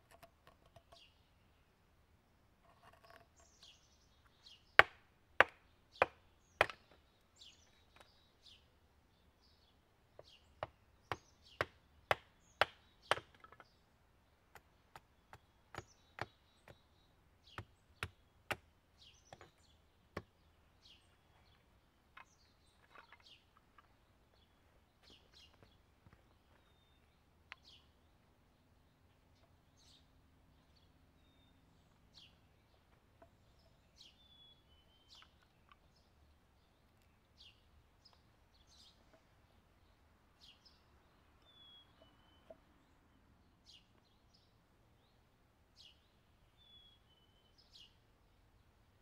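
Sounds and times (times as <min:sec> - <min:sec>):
small birds chirping: 0:00.0 - 0:02.0, 0:02.6 - 0:49.0
hatchet chopping wood: 0:04.8 - 0:07.0, 0:10.6 - 0:13.7, 0:14.5 - 0:16.8, 0:17.4 - 0:18.7, 0:19.3 - 0:20.3.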